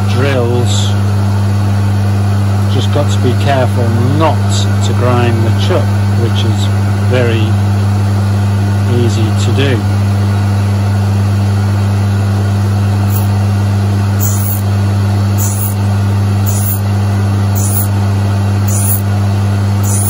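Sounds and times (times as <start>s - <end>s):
grinder motor hum: 13.0s - 20.0s
grinding wheel hiss on drill tip: 13.1s - 13.4s, 14.2s - 14.7s, 15.4s - 15.8s, 16.4s - 16.9s, 17.6s - 18.0s, 18.7s - 19.1s, 19.8s - 20.0s.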